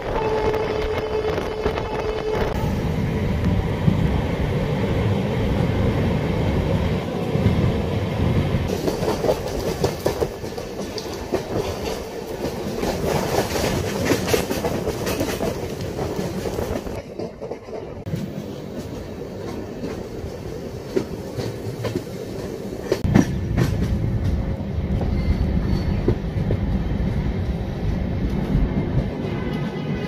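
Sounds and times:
train coaches rumbling: 0.0s - 30.0s.

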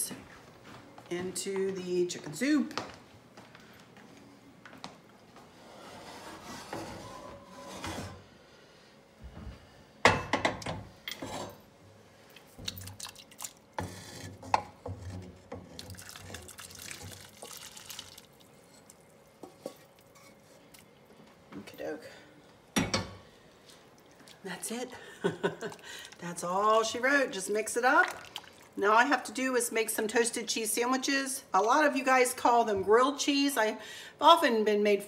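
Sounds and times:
noodles plopping and splashing: 12.6s - 13.7s, 15.8s - 18.5s, 28.0s - 28.8s.

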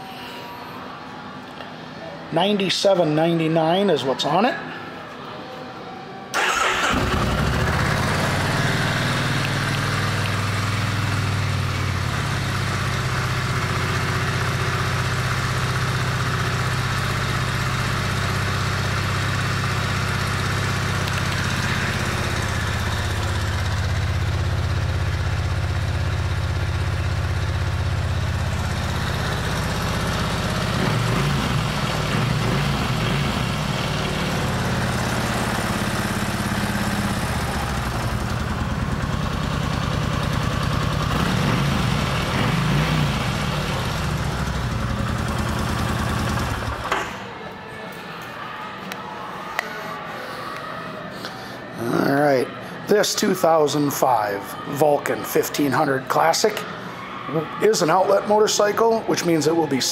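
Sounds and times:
motorcycle engine idling: 6.4s - 47.1s
motorcycle engine starting: 6.4s - 47.2s.

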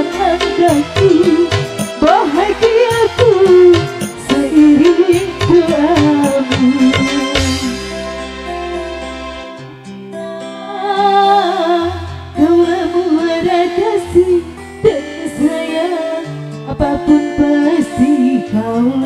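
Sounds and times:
person singing with vibrato: 0.0s - 8.1s, 10.4s - 19.0s
sustained bass notes: 0.0s - 10.3s
plucked strings: 0.0s - 19.0s.

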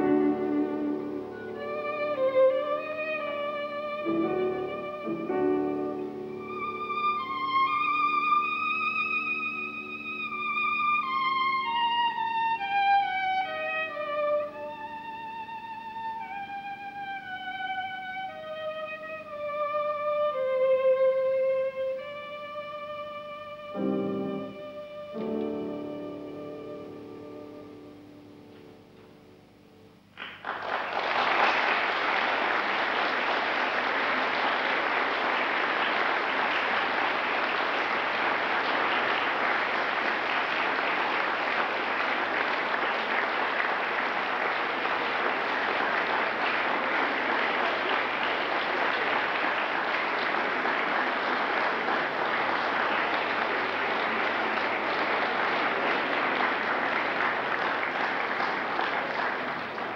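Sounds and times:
audience applause: 0.0s - 12.0s, 30.1s - 59.9s.

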